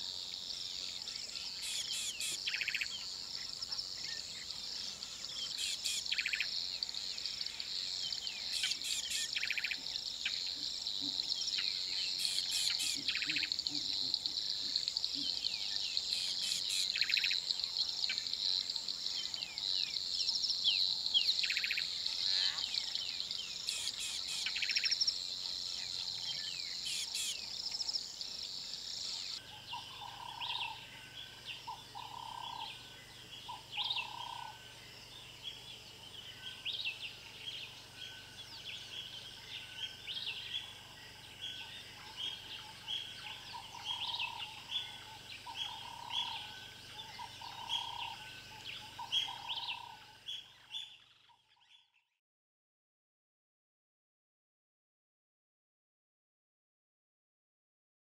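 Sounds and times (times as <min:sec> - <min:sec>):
bird chirps: 0:00.8 - 0:17.5, 0:19.2 - 0:52.0
high chirping chorus: 0:01.4 - 0:10.5, 0:11.2 - 0:18.4, 0:19.2 - 0:51.0
low repeated bird call: 0:01.5 - 0:03.6, 0:08.1 - 0:09.8, 0:10.5 - 0:17.4, 0:21.3 - 0:25.1, 0:26.8 - 0:28.0, 0:41.6 - 0:50.9.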